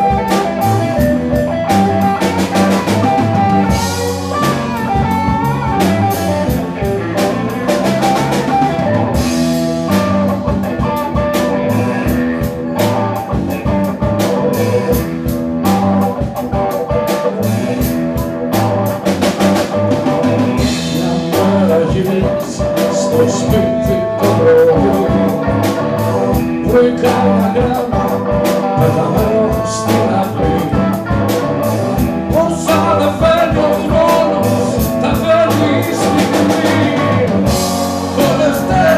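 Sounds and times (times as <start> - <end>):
bass: 0.0 - 38.9
drum kit: 0.0 - 38.9
electric guitar: 0.0 - 38.9
keyboard: 0.0 - 38.9
person singing: 20.3 - 38.9.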